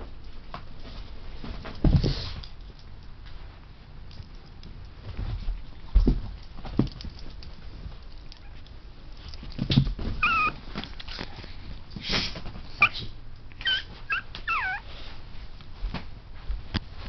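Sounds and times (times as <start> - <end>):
thumps and scuffs: 1.4 - 2.5, 5.0 - 7.2
puppy whining: 8.4 - 8.7, 10.2 - 11.4, 12.8 - 15.0.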